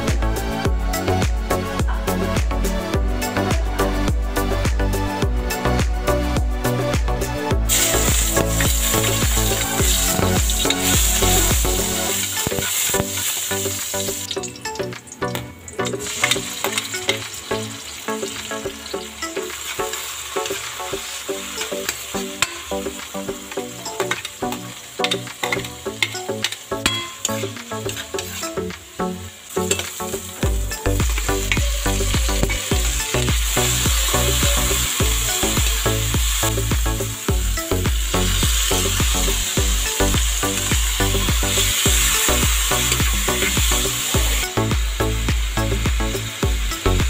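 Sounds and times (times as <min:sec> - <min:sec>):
background music: 0:00.0 - 0:47.0
vegetables sizzling in oil: 0:07.7 - 0:47.0
metal ladle scraping pan: 0:21.5 - 0:28.6.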